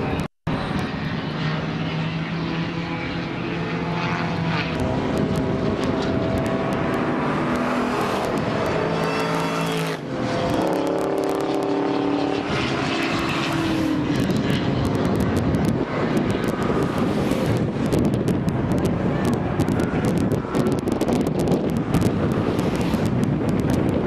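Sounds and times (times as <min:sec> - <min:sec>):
wind noise and buffeting: 0:00.0 - 0:01.7, 0:02.3 - 0:24.0
engine running hard: 0:00.0 - 0:24.0.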